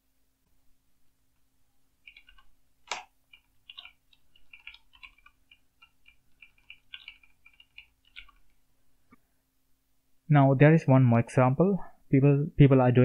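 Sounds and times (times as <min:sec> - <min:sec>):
keyboard typing: 0:02.0 - 0:08.6.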